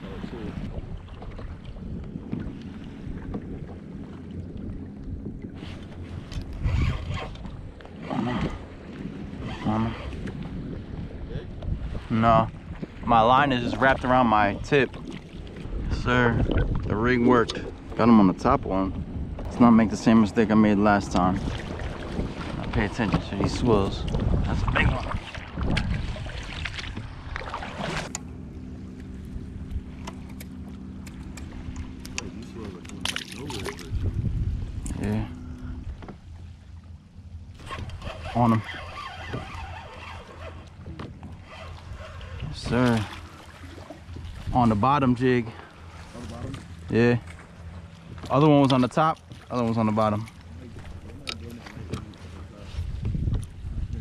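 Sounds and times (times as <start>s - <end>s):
water moving around kayak: 0.0s - 54.0s
wind buffeting microphone: 0.0s - 54.0s
steady low hum: 22.8s - 54.0s.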